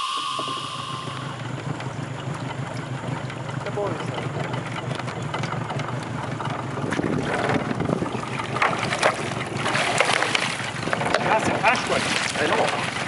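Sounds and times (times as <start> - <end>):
water splashing and sloshing: 0.0 - 13.0
wind buffeting microphone: 6.8 - 9.0.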